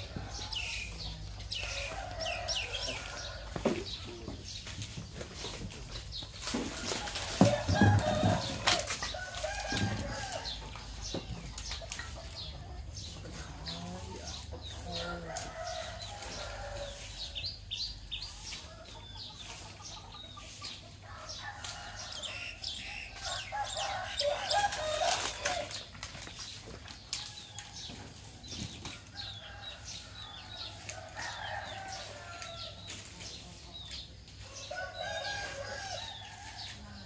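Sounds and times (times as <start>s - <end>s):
small birds chirping: 0.0s - 25.6s, 26.2s - 37.0s
chicken clucking: 6.8s - 17.0s, 18.2s - 22.2s.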